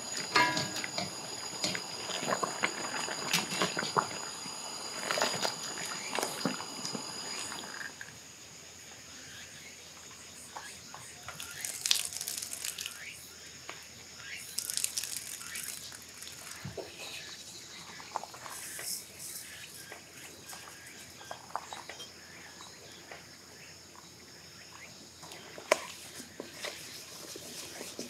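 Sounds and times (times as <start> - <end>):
insects chorus: 0.0 - 28.0
utensils clicking and knocking: 0.1 - 2.7.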